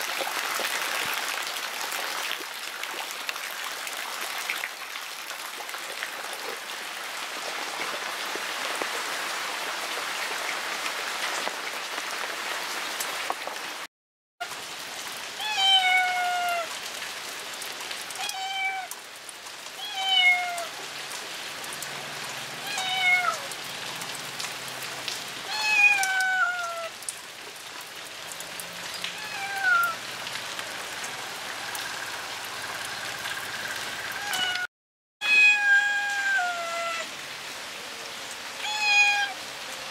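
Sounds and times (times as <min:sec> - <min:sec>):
rain falling: 0:00.0 - 0:34.7, 0:35.3 - 0:39.9
cat meowing: 0:15.4 - 0:16.7, 0:18.2 - 0:18.9, 0:19.8 - 0:20.7, 0:22.6 - 0:23.5, 0:25.5 - 0:26.9, 0:29.2 - 0:30.0, 0:34.2 - 0:37.1, 0:38.6 - 0:39.4.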